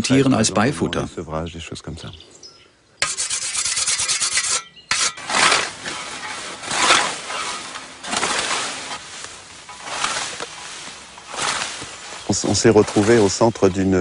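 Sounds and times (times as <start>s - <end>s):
scythe swishing through nettles: 3.1s - 13.7s.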